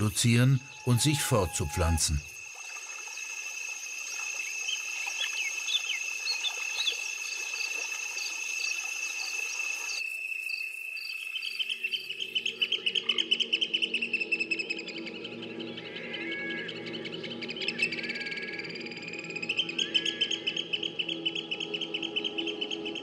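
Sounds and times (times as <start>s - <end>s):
insect trilling: 0.0s - 14.8s
soft background music: 12.4s - 23.0s.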